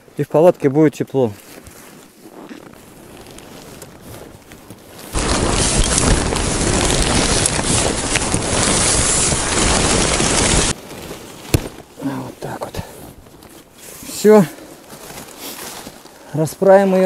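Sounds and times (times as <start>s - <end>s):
tent fabric rustling: 1.2s - 17.0s
wind buffeting microphone: 3.7s - 10.8s.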